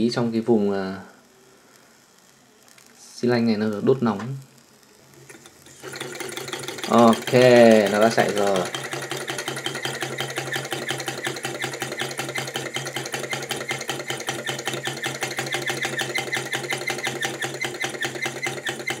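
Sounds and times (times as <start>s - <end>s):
small engine rapid clicking: 5.2s - 19.0s.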